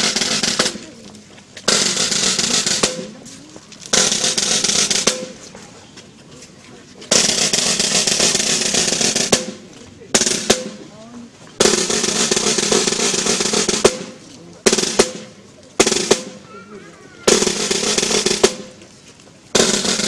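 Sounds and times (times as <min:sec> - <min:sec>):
snare drum rolls: 0:00.0 - 0:01.0, 0:01.7 - 0:03.3, 0:03.9 - 0:05.5, 0:07.1 - 0:10.8, 0:11.6 - 0:16.6, 0:17.2 - 0:18.8, 0:19.5 - 0:20.0.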